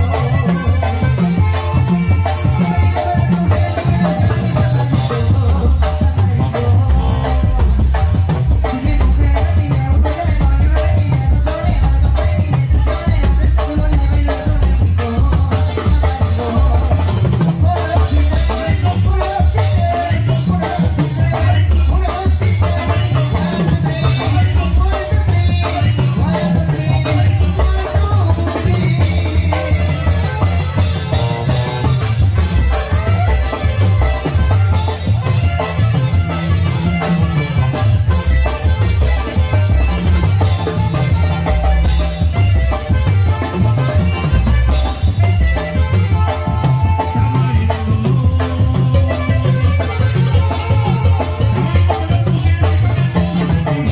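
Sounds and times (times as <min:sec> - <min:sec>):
saxophone melody: 0:00.0 - 0:09.2, 0:25.4 - 0:53.9
bass drum beat: 0:00.0 - 0:53.9
drum kit: 0:00.0 - 0:53.9
keyboard: 0:00.0 - 0:53.9
live band playing cumbia: 0:00.0 - 0:53.9.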